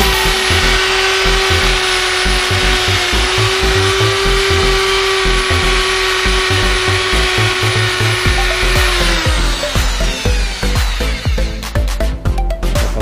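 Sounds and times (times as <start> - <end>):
electric drill whining: 0.0 - 12.2
background music with a beat: 5.7 - 13.0.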